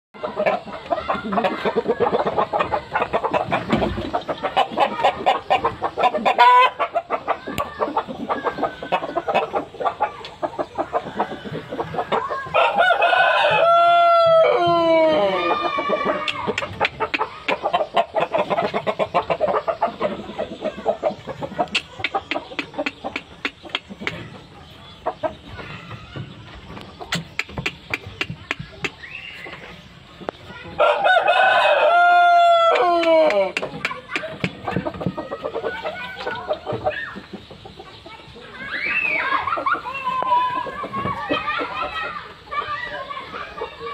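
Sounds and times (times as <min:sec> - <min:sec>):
chickens clucking: 0:00.2 - 0:43.9
rooster crowing: 0:12.5 - 0:16.3, 0:30.8 - 0:33.5.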